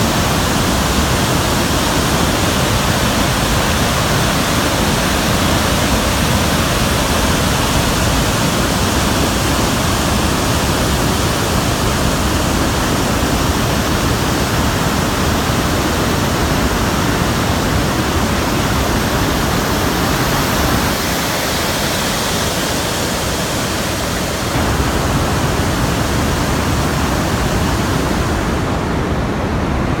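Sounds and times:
water rushing over spillway: 0.0 - 30.0.

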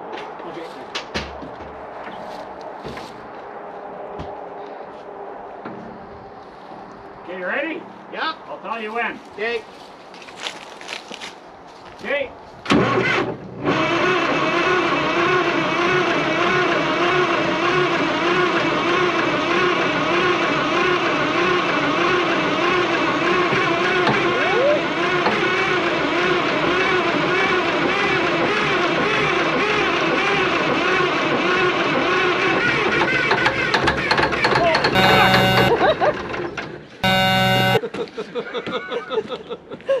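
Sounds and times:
diesel engine starter cranking: 12.7 - 18.6.

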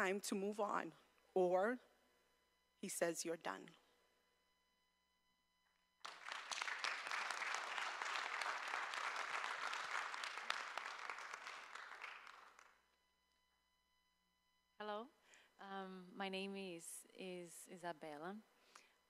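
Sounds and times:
applause: 6.0 - 12.9.

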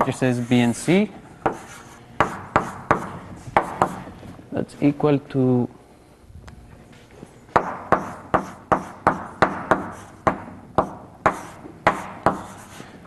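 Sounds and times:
chalk tapping on blackboard: 1.4 - 4.0, 7.5 - 12.9.

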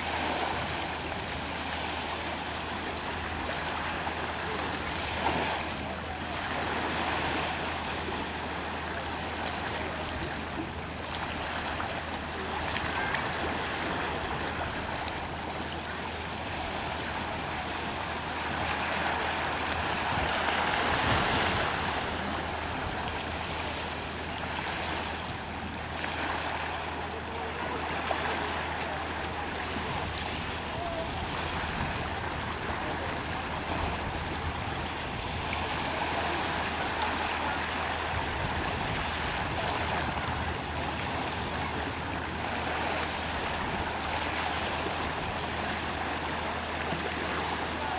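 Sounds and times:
sea water lapping at shore: 0.0 - 47.9.

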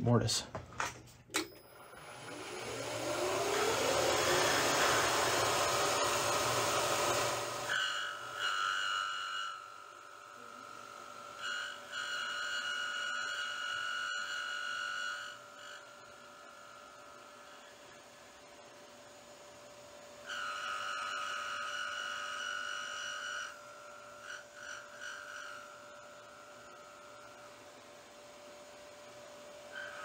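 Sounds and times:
motor winding up with whine: 1.4 - 30.0
router bit cutting wood: 1.8 - 18.4, 19.4 - 27.8, 28.8 - 30.0.

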